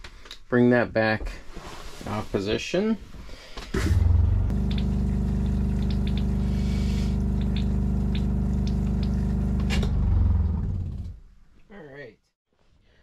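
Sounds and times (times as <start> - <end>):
toilet flushing: 3.8 - 10.0
water pump humming: 3.9 - 11.2.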